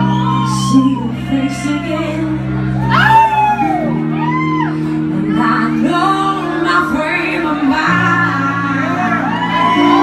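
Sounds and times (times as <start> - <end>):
woman singing: 0.0 - 2.7, 5.1 - 10.0
electric guitar: 0.0 - 10.0.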